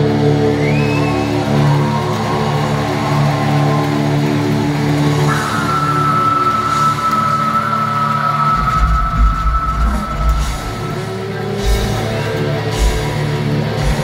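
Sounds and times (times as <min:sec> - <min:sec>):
metal band droning chords: 0:04.4 - 0:14.0.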